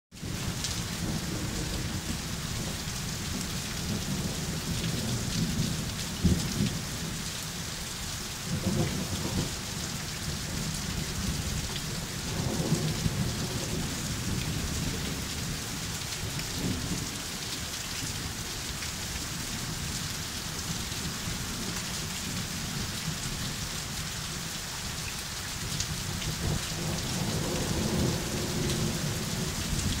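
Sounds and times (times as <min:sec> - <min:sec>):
heavy rain pouring: 0:00.1 - 0:30.0
low thunder rumbles: 0:00.2 - 0:07.1, 0:08.5 - 0:09.6, 0:10.3 - 0:17.2, 0:26.3 - 0:30.0.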